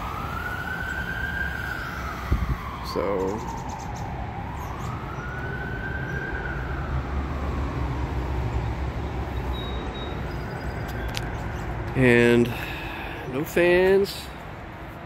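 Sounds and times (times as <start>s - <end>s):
siren wailing: 0.0s - 11.1s.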